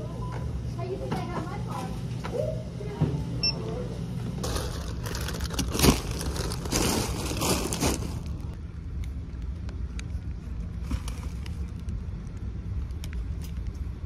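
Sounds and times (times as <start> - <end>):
barcode scanner beep: 3.4 - 3.6
plastic bags rustling: 4.4 - 8.6
steady low rumble: 4.4 - 14.0.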